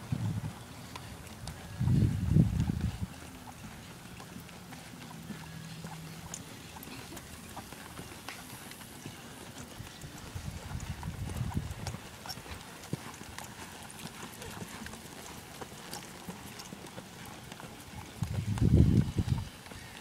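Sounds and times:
hoofbeats on soft dirt: 0:00.0 - 0:20.0.

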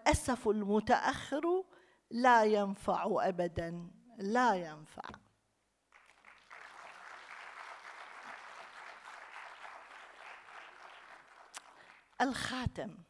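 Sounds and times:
faint audience applauding: 0:05.9 - 0:12.2.

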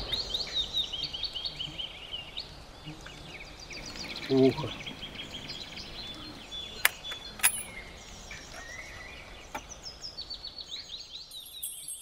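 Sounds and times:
small birds chirping and singing: 0:00.0 - 0:12.0
rifle bolt metallic clicks: 0:06.8 - 0:07.8.

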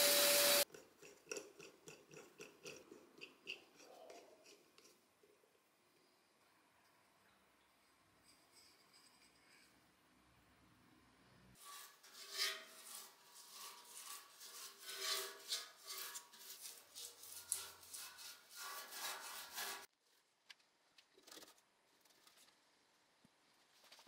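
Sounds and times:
scraping on sheet metal: 0:11.6 - 0:19.9.

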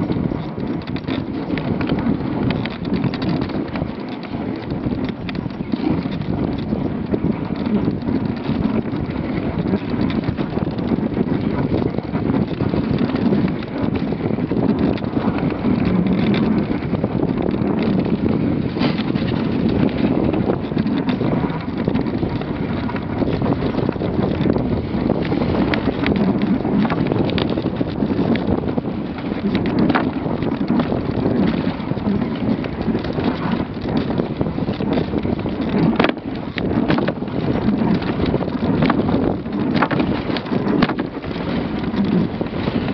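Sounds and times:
sharp clicks and knocks: 0:00.0 - 0:42.9
wind on microphone: 0:00.0 - 0:42.9.

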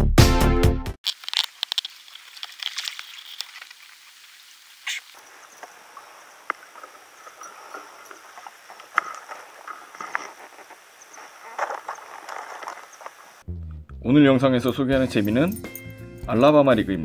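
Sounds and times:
water splashes and drips: 0:01.1 - 0:07.1
faint high hiss: 0:01.2 - 0:13.4.

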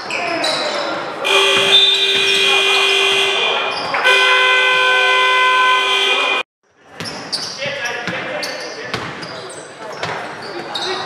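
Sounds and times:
game buzzer blast: 0:01.2 - 0:06.4.

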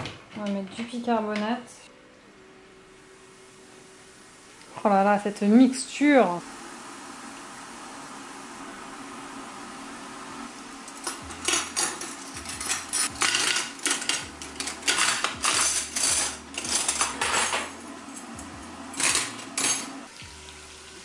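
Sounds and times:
cutlery clinking on glass: 0:11.1 - 0:17.7.

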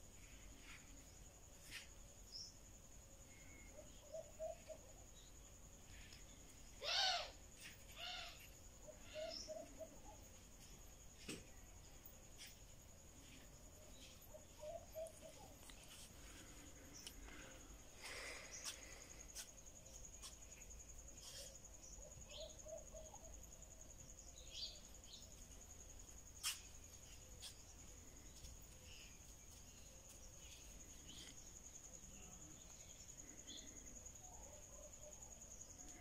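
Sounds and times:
insect trill: 0:00.0 - 0:36.0.

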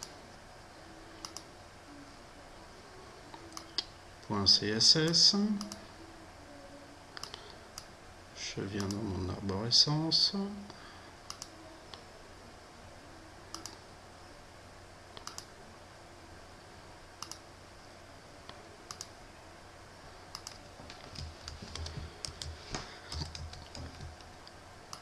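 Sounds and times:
computer mouse clicks: 0:01.2 - 0:01.5, 0:07.2 - 0:07.9, 0:08.8 - 0:09.0, 0:11.3 - 0:12.0, 0:13.5 - 0:13.8, 0:15.2 - 0:15.5, 0:17.2 - 0:17.4, 0:18.5 - 0:19.1, 0:20.3 - 0:25.0
keyboard typing: 0:20.3 - 0:25.0.

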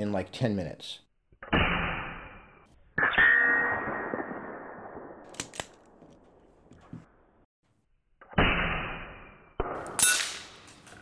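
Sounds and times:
pellets clinking on steel targets: 0:09.8 - 0:11.0.

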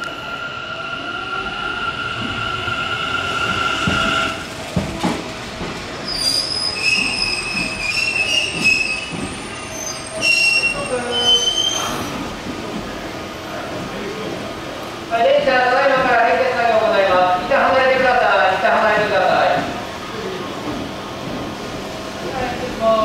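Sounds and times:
train high whine: 0:00.0 - 0:12.1
train wheels squealing: 0:06.0 - 0:12.2.

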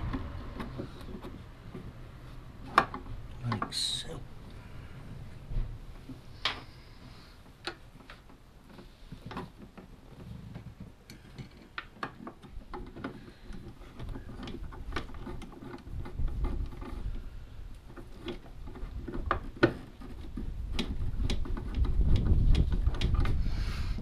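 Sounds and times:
tools tapping on metal and plastic: 0:02.6 - 0:03.8, 0:07.4 - 0:17.2, 0:17.8 - 0:23.4.

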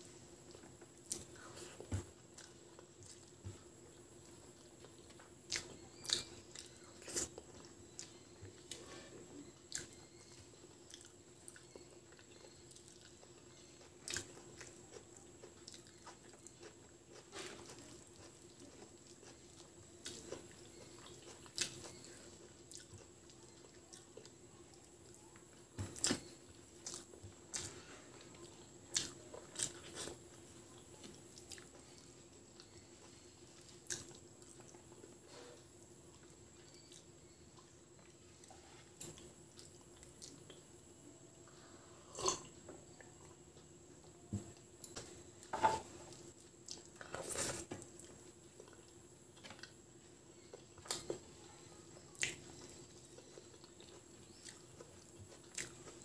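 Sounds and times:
person chewing with mouth smacks: 0:00.3 - 0:56.0.

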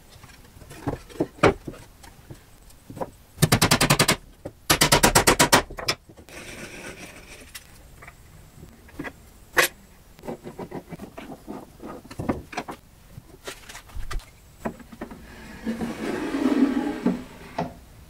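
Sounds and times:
wood rubbing and sliding: 0:14.8 - 0:17.8.

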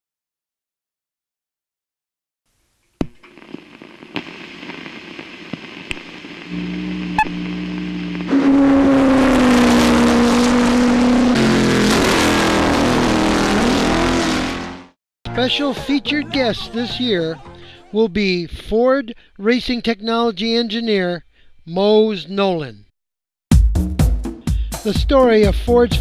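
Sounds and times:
race car engine revving: 0:06.5 - 0:15.0.

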